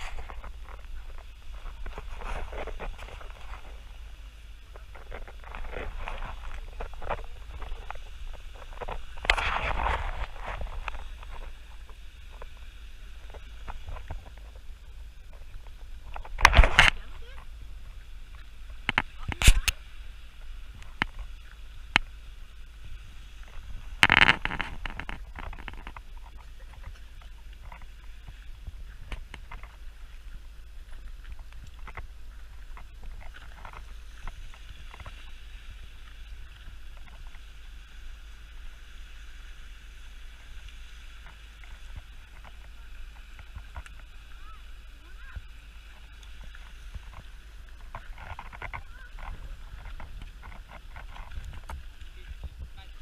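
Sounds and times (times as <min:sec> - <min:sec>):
footsteps on rocky path: 0:00.0 - 0:03.9, 0:04.7 - 0:12.6
steady hiss: 0:00.0 - 0:53.0.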